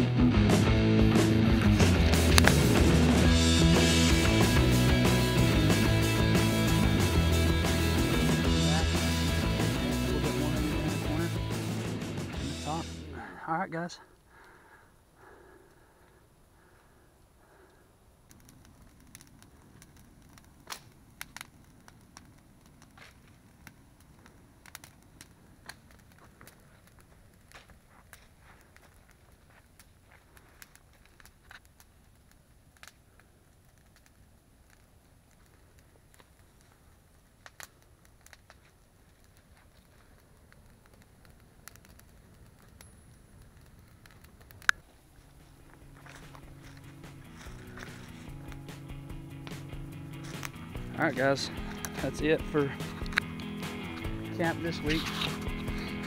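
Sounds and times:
faint low rush: 0.2s - 18.0s, 45.0s - 56.0s
campfire crackling pops: 0.2s - 56.0s.

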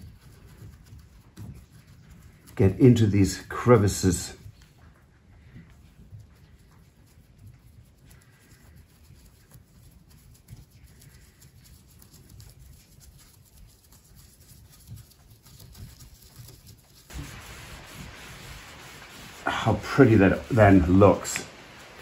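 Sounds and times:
stick scratching wood: 7.6s - 22.0s
steady hiss: 15.4s - 22.0s.

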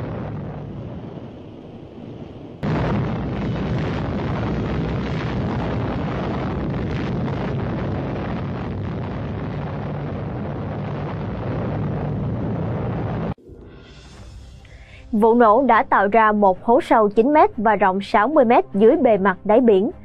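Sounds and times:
explosion rumbling: 0.0s - 15.8s.

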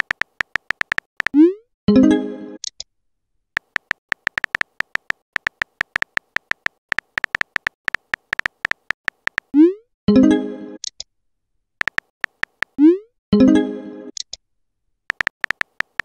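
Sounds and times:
phone keyboard clicks: 0.0s - 1.4s, 3.6s - 9.5s, 11.8s - 12.8s, 15.1s - 16.0s.

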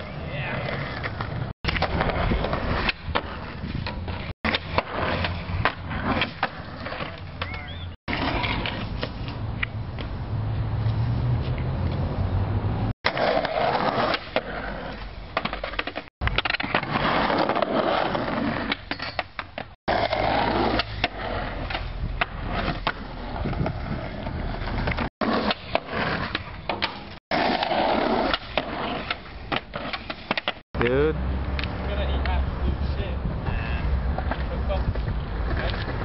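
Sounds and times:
skateboard wheels rolling on concrete: 0.0s - 36.0s
skateboard popping and landing: 0.6s - 10.1s, 13.0s - 30.6s.

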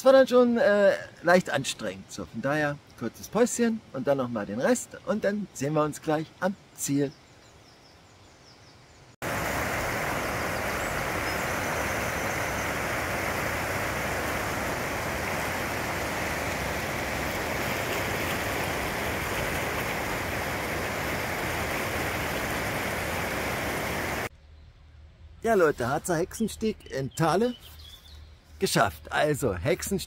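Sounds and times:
river rushing over rapids: 9.2s - 24.3s.

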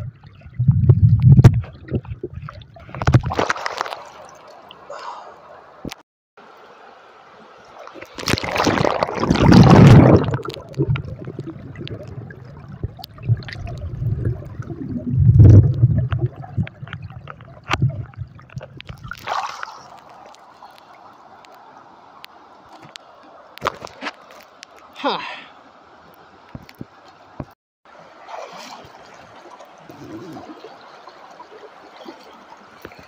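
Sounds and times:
low steady water hiss: 0.0s - 33.0s
muffled underwater sloshing: 7.7s - 21.4s.

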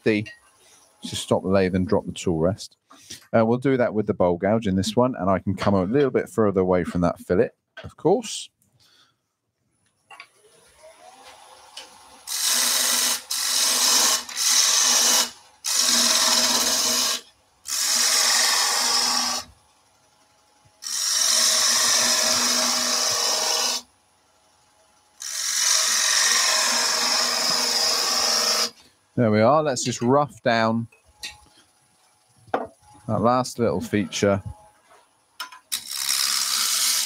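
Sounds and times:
gouge cutting spinning wood: 11.0s - 19.5s, 20.8s - 23.8s, 25.2s - 28.8s, 35.7s - 37.0s.

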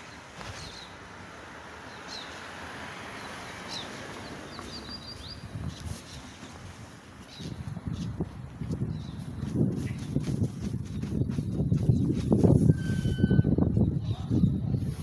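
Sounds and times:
small birds chirping: 0.0s - 1.1s, 1.8s - 2.5s, 3.1s - 6.6s, 7.2s - 12.5s
outdoor background hiss: 0.0s - 9.7s.

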